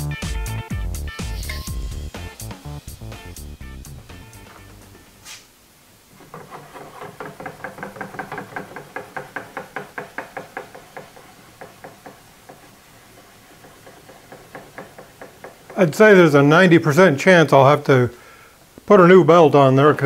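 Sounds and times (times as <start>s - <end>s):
drill press head clicking: 6.4s - 15.8s.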